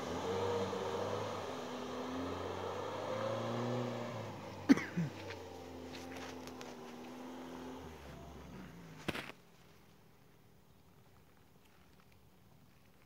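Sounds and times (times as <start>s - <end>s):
car engine revving: 0.0s - 9.1s.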